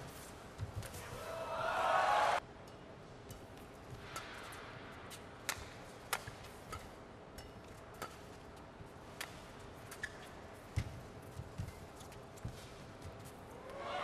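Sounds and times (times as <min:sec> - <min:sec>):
racket hitting shuttlecock: 0:03.3 - 0:13.2.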